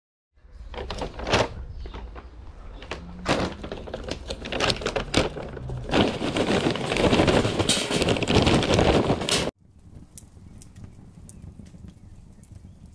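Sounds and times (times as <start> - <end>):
bag rustling and crinkling: 0.7 - 9.6.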